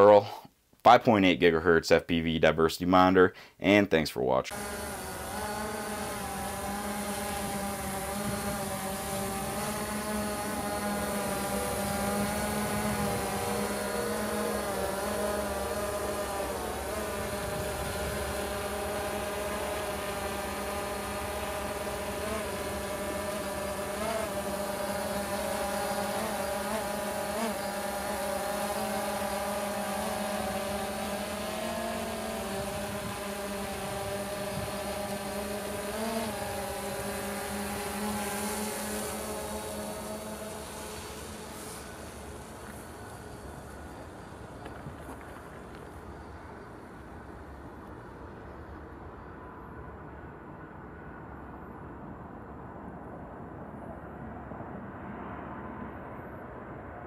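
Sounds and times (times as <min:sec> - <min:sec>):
drone buzzing hum: 0:04.5 - 0:49.8.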